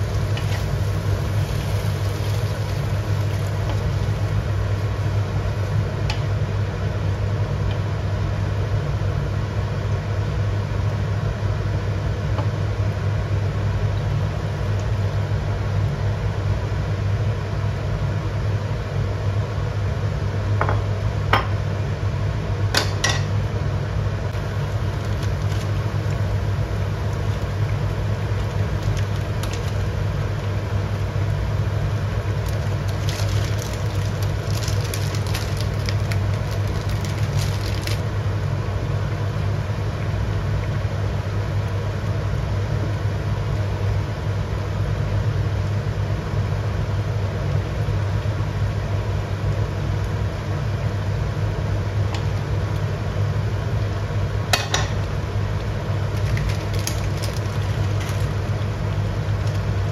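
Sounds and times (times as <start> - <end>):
wooden spatula stirring noodles: 0.0 - 5.1
soup simmering with faint crackle: 0.0 - 6.2, 24.4 - 38.1
gas stove hum and rush: 0.0 - 59.9.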